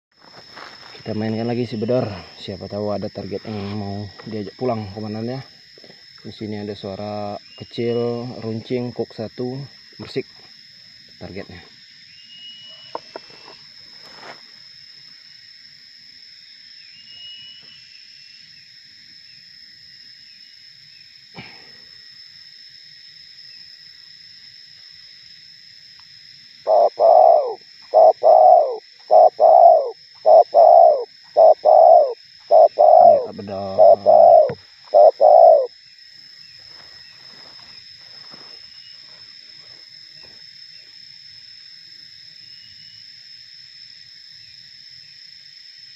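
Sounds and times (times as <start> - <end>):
high-pitched insect drone: 0.2 - 45.9
dove cooing: 26.7 - 35.7.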